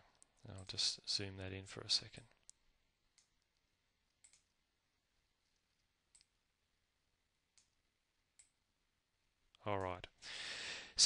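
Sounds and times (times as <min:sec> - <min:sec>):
computer mouse clicks: 0:02.4 - 0:04.6, 0:05.4 - 0:06.4, 0:07.5 - 0:07.8, 0:08.4 - 0:08.6.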